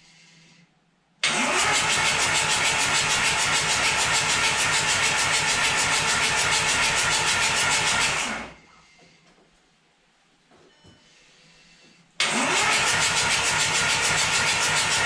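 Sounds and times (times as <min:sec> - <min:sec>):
diesel engine starter cranking: 0:01.2 - 0:08.5, 0:12.2 - 0:15.0.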